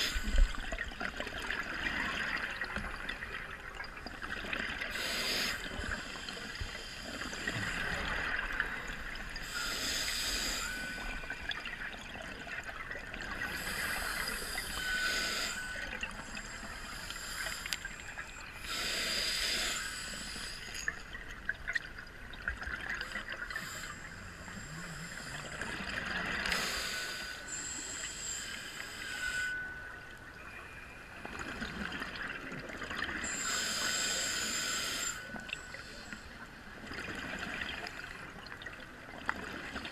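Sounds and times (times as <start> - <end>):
regulator hiss on inhale: 0.0 - 0.6, 4.9 - 8.2, 9.4 - 11.4, 13.4 - 21.1, 23.0 - 29.9, 33.2 - 36.4.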